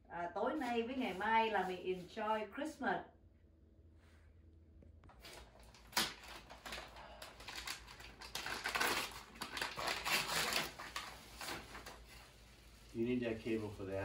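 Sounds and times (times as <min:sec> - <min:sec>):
wrapping paper tearing and crinkling: 0:05.2 - 0:14.0.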